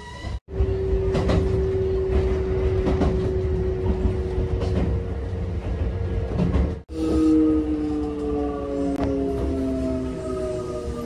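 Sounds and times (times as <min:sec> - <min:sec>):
train wheels rumbling on track: 0:00.1 - 0:11.0
faint rail-joint clacks: 0:01.0 - 0:06.8.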